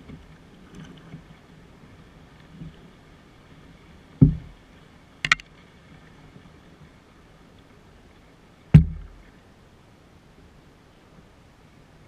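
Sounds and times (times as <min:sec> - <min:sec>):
knocks on canoe hull: 0:04.2 - 0:04.6, 0:08.8 - 0:09.2.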